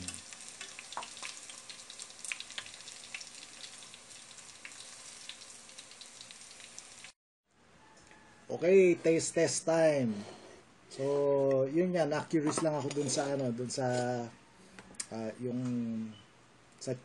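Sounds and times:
food sizzling in hot oil: 0.0 - 7.2
oil crackles and pops: 0.0 - 7.2.

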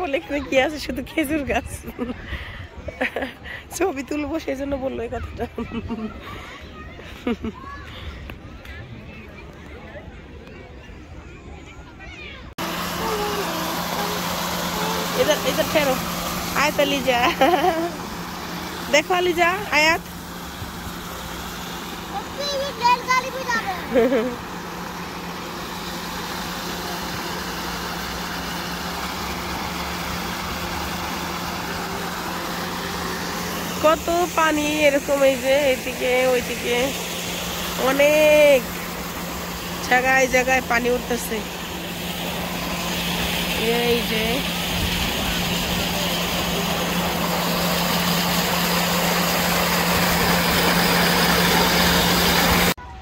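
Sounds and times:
steady low hum: 12.5 - 52.9
fountain water splashing: 12.6 - 52.8.

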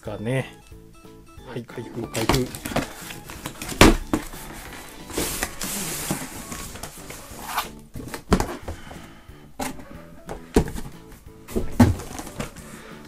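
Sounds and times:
box knocks and taps: 2.2 - 4.4, 9.6 - 12.6
cardboard sliding on cardboard: 4.2 - 7.7.

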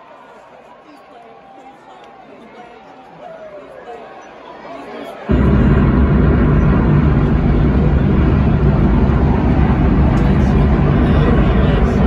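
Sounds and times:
arena crowd roaring: 3.1 - 12.0.

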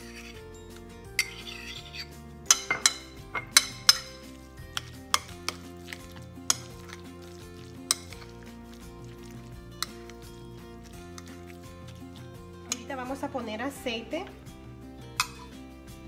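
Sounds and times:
fork stirring in a bowl: 0.0 - 0.5, 1.2 - 13.2, 15.2 - 15.6
soft background music: 0.0 - 16.0
fork clinking against bowl: 1.2 - 8.4, 9.8 - 10.2, 10.9 - 12.9, 15.2 - 15.5.

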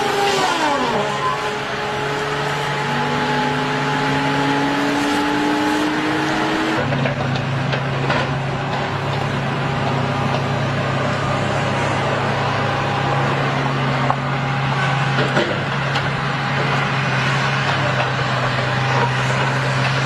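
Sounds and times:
disc saw whine: 0.0 - 6.9, 11.1 - 20.0
diesel engine running: 0.0 - 20.0.

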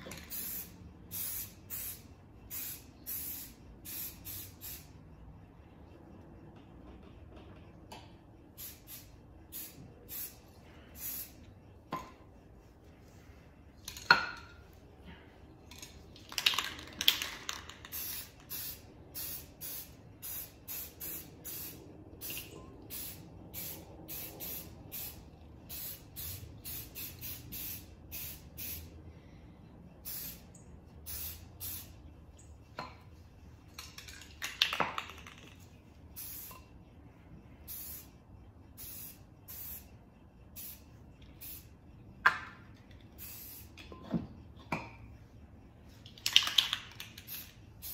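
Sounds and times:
spray paint can hissing: 0.1 - 4.9, 8.6 - 11.4, 16.2 - 28.9, 30.0 - 32.0, 33.8 - 36.6, 37.7 - 38.1, 38.8 - 39.9, 40.6 - 40.8, 41.4 - 41.7, 43.2 - 43.8, 46.2 - 47.9.

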